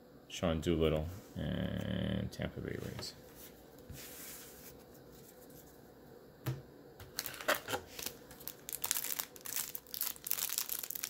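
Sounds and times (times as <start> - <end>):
foil wrapper crinkling: 7.1 - 11.0.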